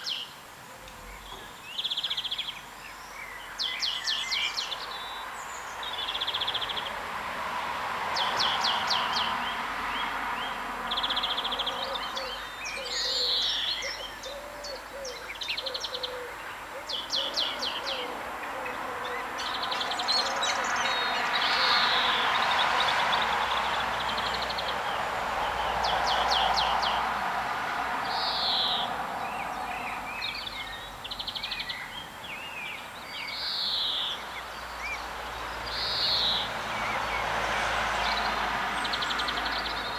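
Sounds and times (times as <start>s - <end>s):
songbirds trilling and chirping: 0.0s - 39.9s.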